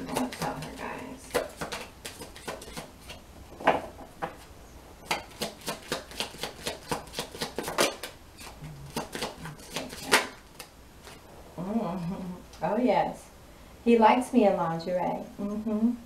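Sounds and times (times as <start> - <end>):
cards being shuffled: 0.0 - 3.2, 5.4 - 11.2.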